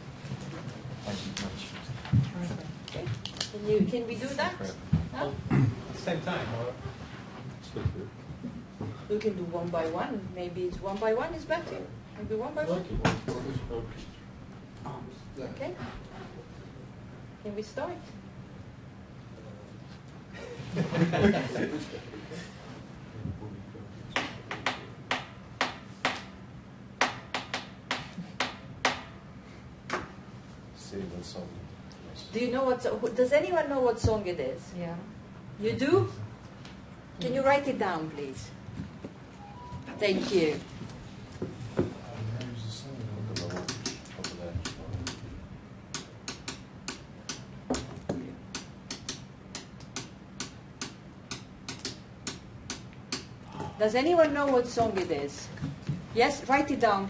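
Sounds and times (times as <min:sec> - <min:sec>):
rhythmic tapping on a table: 0:24.2 - 0:26.3, 0:27.0 - 0:29.1, 0:43.4 - 0:45.2, 0:45.9 - 0:53.3.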